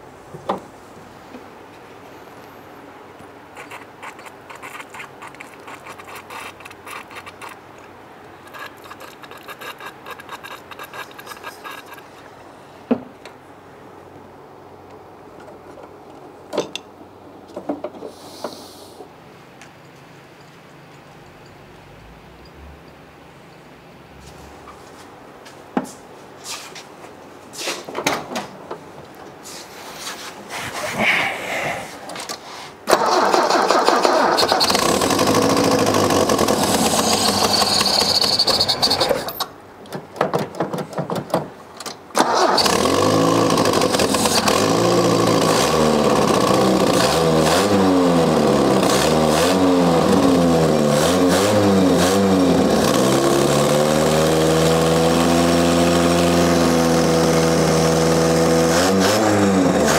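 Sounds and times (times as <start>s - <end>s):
car engine starting and running: 32.9s - 39.3s, 42.2s - 59.9s.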